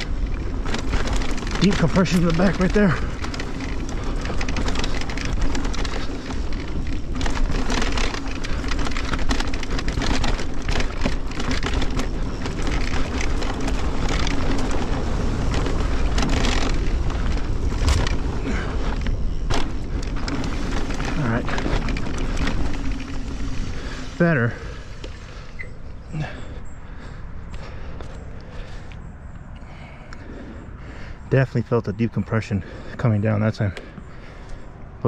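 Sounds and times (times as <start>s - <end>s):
wind rumble on microphone: 0.0s - 26.1s
tyres crunching over dirt: 0.0s - 29.0s, 29.6s - 34.6s
bike knocking and rattling: 0.0s - 34.7s.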